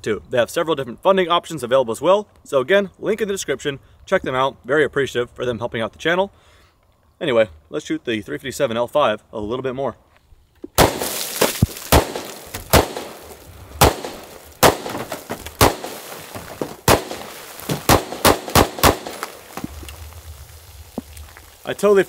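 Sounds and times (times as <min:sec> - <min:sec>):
faint cracks: 0:10.1 - 0:22.0
pistol shots: 0:10.8 - 0:19.7.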